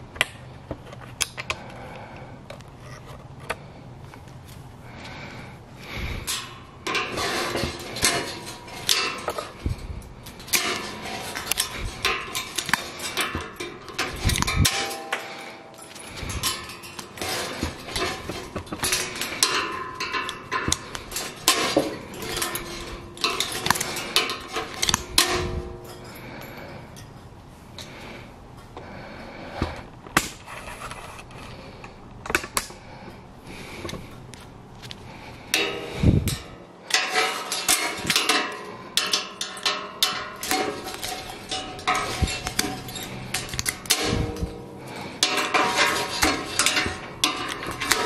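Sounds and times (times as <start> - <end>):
wire and pliers clinking on rebar: 3.5 - 30.5, 33.6 - 48.0.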